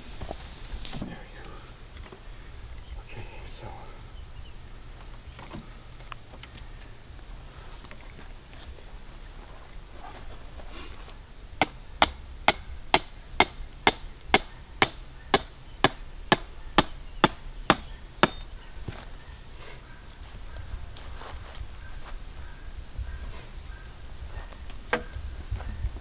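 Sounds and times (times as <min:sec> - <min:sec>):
hand hammer strikes: 0:11.6 - 0:18.5.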